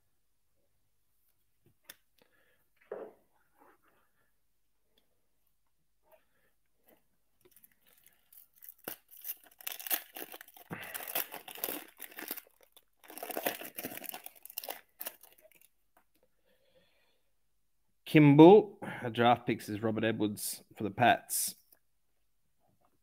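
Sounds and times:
foil wrapper tearing and crinkling: 7.5s - 15.7s.

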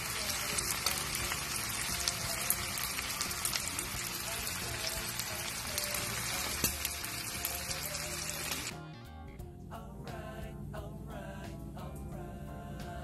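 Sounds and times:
meat sizzling in a pan: 0.0s - 8.7s
soft background music: 0.0s - 13.0s.

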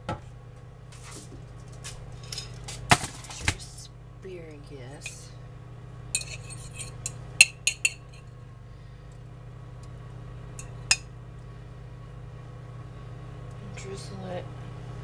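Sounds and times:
fork clinking against china bowl: 6.2s - 8.3s, 10.6s - 11.1s.

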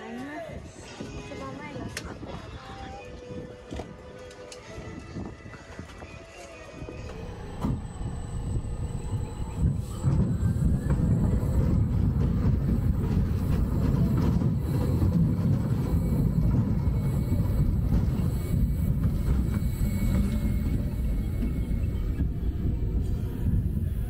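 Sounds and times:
roller coaster rumbling on track: 6.8s - 24.0s.

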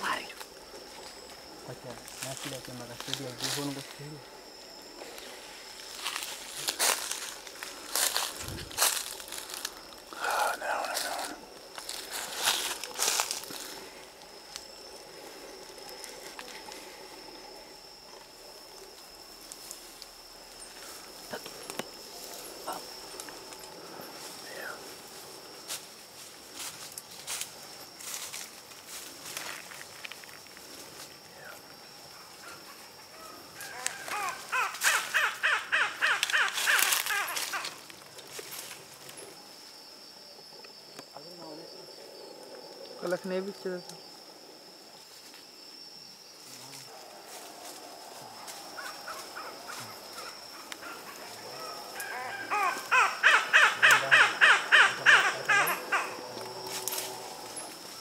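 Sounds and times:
animal calling falling notes: 51.9s - 56.2s.

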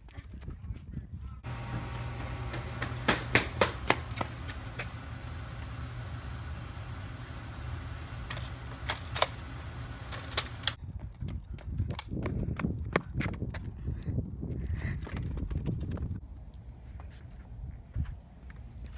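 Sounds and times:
child running on concrete: 0.0s - 5.6s, 10.3s - 16.2s
steady low hum: 1.4s - 10.8s.

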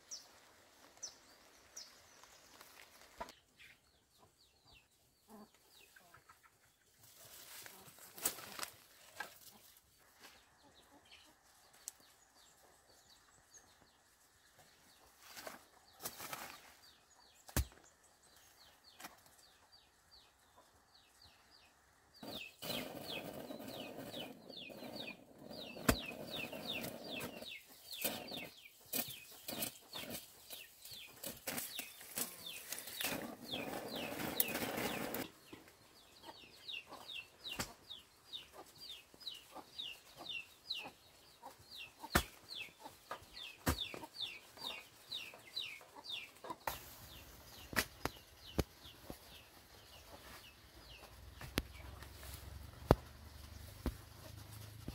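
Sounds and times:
rustling and scraping: 15.1s - 16.9s, 22.2s - 35.6s
chicks peeping: 18.3s - 54.9s.

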